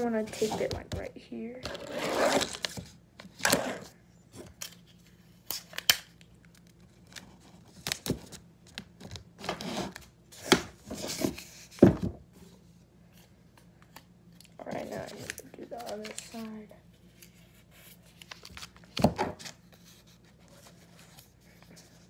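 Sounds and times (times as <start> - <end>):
paper crinkling: 14.7 - 22.0.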